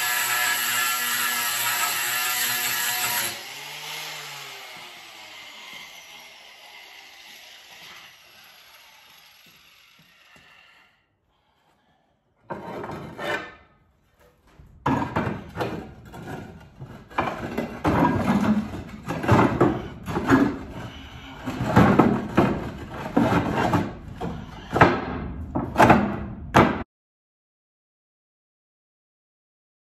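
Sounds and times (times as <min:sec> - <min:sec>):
roof tiles knocking and scraping: 0:14.1 - 0:26.8.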